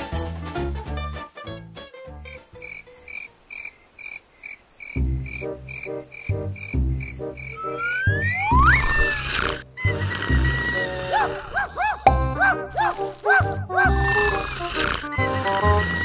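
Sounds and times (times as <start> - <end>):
crickets chirping: 2.2 - 16.0
rising whistle-like glides: 7.5 - 9.3.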